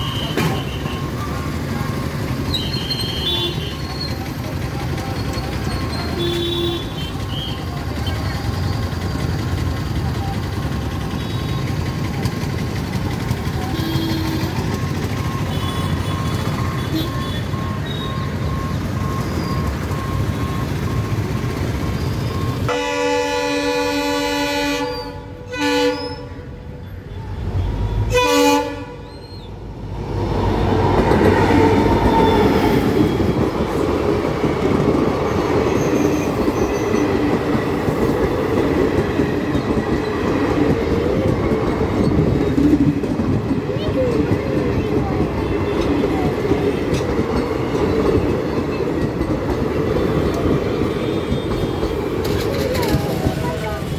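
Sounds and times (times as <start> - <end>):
train rumbling: 0.0 - 53.9
train horn blasts: 22.7 - 26.5, 27.6 - 29.2.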